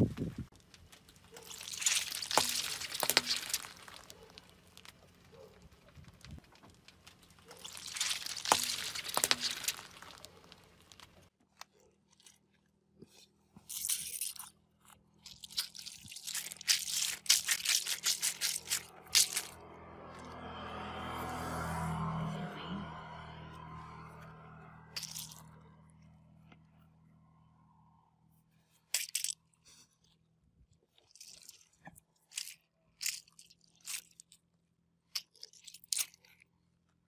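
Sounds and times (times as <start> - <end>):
water beads crushed by car tyre: 0.5 - 19.6, 24.9 - 25.4, 28.8 - 29.4, 30.9 - 36.5
squishes of ball squeezed by hand: 1.0 - 5.2, 7.2 - 19.6, 25.0 - 25.4, 30.8 - 34.3.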